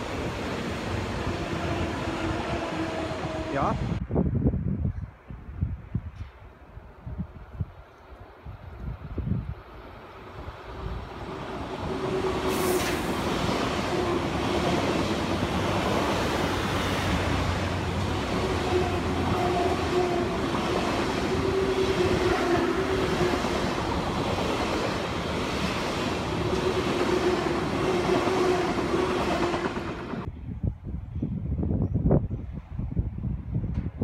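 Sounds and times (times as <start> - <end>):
train hum: 0.0 - 34.0
train wheels rolling on rail: 8.8 - 30.3.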